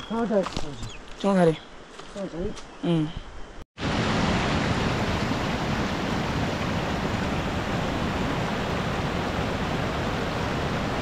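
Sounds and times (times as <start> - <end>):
water rushing: 3.8 - 11.0.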